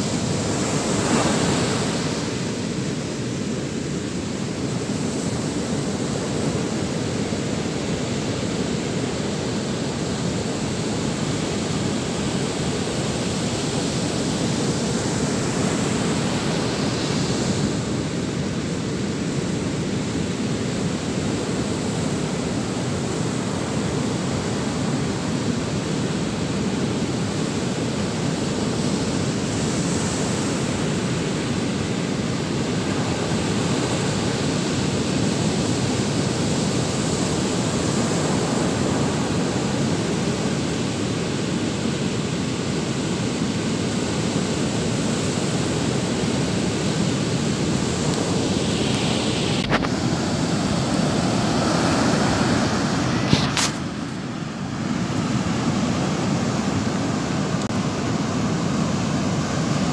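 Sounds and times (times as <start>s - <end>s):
surf breaking on beach: 0.0s - 59.9s
wind: 0.0s - 59.9s.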